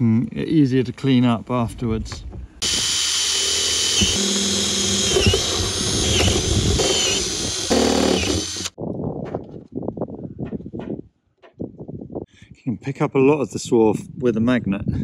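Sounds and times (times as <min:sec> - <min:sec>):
drill whining through sheet metal: 0:02.6 - 0:08.8.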